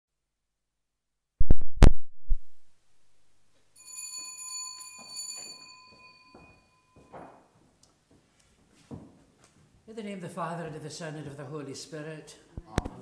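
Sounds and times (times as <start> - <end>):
small bell ringing: 3.8 - 7.5
soft footsteps: 4.7 - 9.8.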